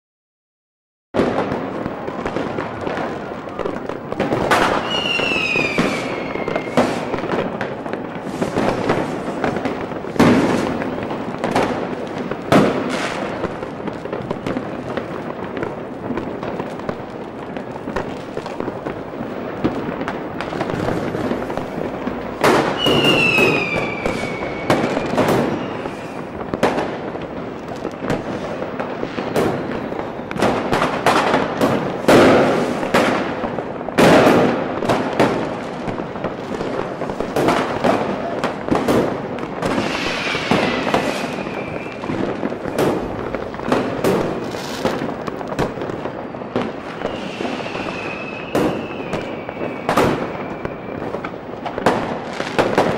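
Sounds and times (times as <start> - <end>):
firework shells bursting: 3.7 - 26.9, 36.6 - 52.9
firework whistle falling in pitch: 4.5 - 7.2, 22.4 - 26.4, 39.6 - 42.9, 46.3 - 51.3.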